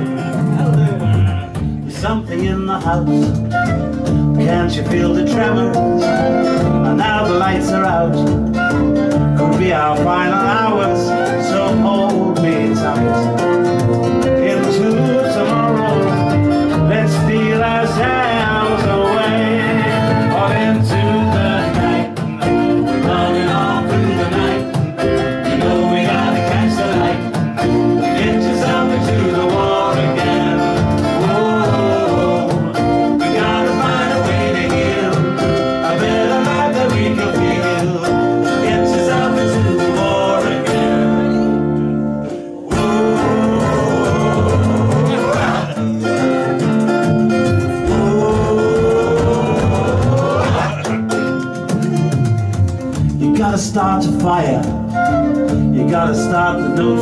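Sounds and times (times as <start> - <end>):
strummed acoustic guitar: 0.0 - 57.0
flute melody: 3.0 - 13.7, 54.7 - 56.7
frame drum beating: 42.7 - 45.8, 46.7 - 55.7.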